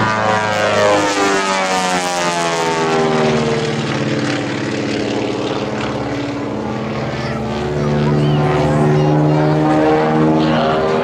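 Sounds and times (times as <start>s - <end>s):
propeller airplane droning overhead: 0.0s - 11.0s.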